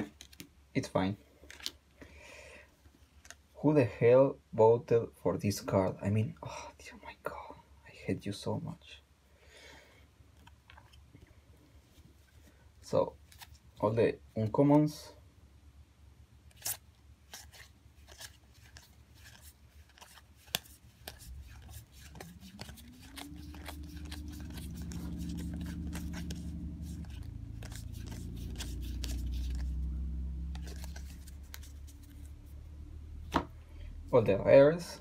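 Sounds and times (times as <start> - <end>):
trading cards flicked by hand: 18.1 - 29.8
low hum rising in pitch: 22.1 - 34.4.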